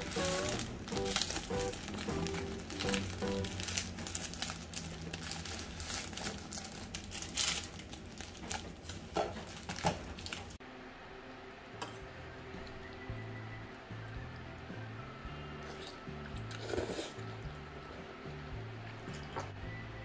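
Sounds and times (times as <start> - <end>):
plastic wrapper crinkling: 0.0 - 10.6.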